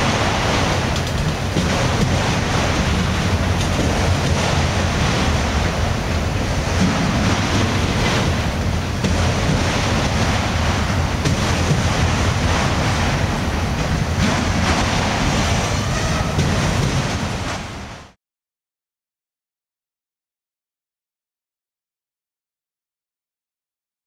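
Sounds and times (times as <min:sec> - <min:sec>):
freight train wheels rumbling on rail: 0:00.0 - 0:18.2.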